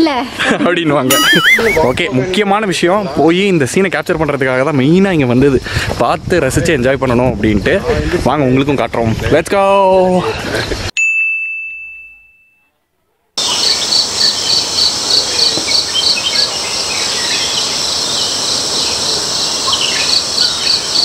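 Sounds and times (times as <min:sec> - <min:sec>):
bird chirps: 0:01.1 - 0:01.9, 0:13.4 - 0:21.0
insect chorus with high trill: 0:01.1 - 0:01.9, 0:13.4 - 0:21.0
ringing ding: 0:01.1 - 0:01.9, 0:11.0 - 0:12.7.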